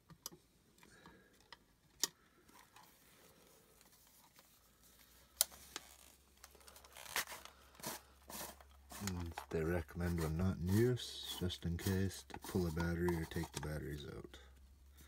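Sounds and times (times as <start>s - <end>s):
light handling noise: 5.4s - 14.3s.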